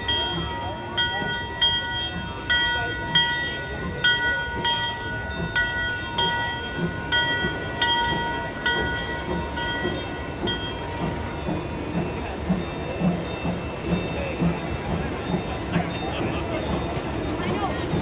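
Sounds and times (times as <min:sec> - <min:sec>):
bell ringing: 0:00.0 - 0:18.0.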